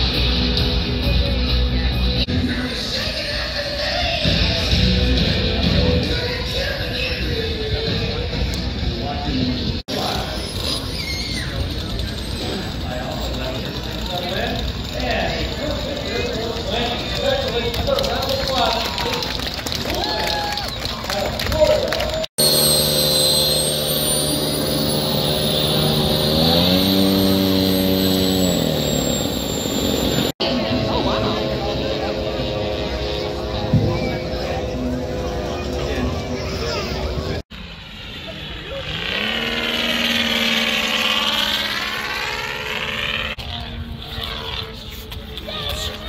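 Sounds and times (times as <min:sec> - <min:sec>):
model jet engine whining: 0:09.9 - 0:20.6, 0:22.4 - 0:46.0.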